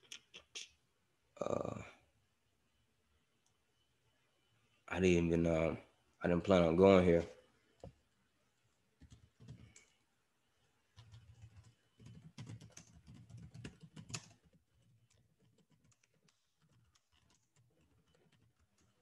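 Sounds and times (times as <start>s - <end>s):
typing on a keyboard: 9.0s - 10.0s, 10.9s - 19.0s.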